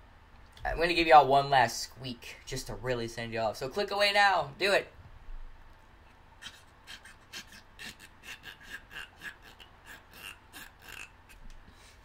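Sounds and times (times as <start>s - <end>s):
teeth rubbing on chew pendant: 6.4s - 11.5s.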